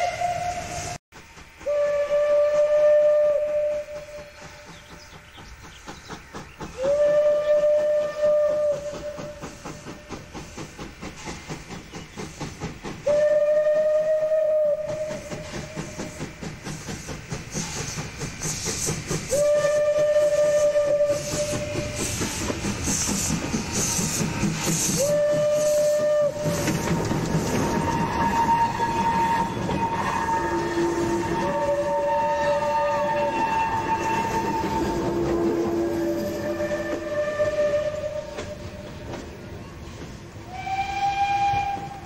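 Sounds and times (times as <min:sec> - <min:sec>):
steam locomotive whistle blasts: 0:00.0 - 0:01.0, 0:01.6 - 0:04.8, 0:06.7 - 0:10.6, 0:12.9 - 0:39.2, 0:39.9 - 0:42.0
steam hissing: 0:00.0 - 0:42.0
locomotive exhaust chuffing: 0:00.6 - 0:39.5.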